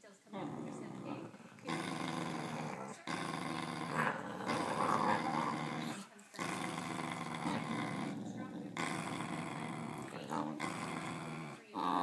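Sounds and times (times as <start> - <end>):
dog growling: 0.3 - 12.0.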